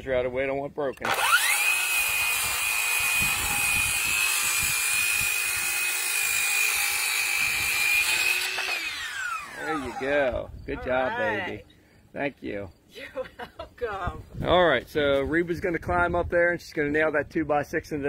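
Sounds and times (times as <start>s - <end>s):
saw crosscutting a board: 1.0s - 10.1s
circular saw whining: 1.0s - 10.3s.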